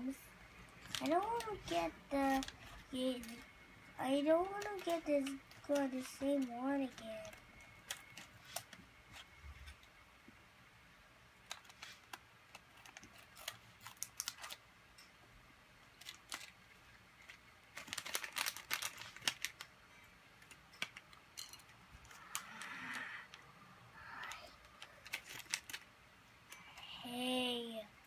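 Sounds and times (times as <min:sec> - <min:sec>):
plastic bag crinkling: 0:00.7 - 0:09.8, 0:11.4 - 0:14.6, 0:15.9 - 0:19.7, 0:24.0 - 0:25.9.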